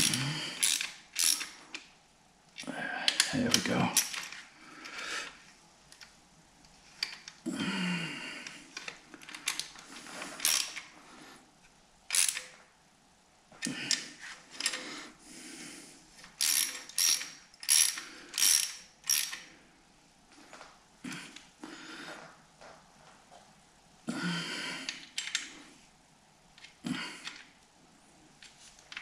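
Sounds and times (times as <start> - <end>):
socket ratchet clicking: 0.0 - 1.6, 10.4 - 10.8, 12.1 - 12.5, 16.4 - 19.5.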